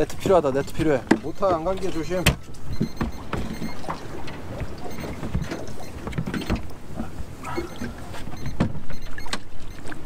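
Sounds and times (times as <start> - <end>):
fishing gear knocking against boat: 0.0 - 9.9
water and wind rumble: 0.0 - 10.0.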